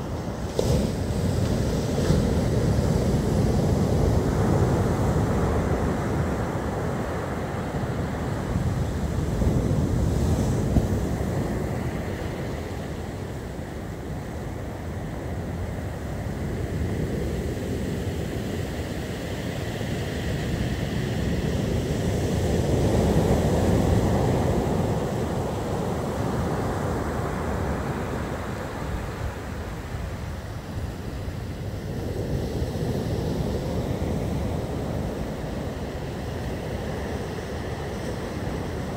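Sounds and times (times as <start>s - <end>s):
surf breaking on beach: 0.0s - 13.9s.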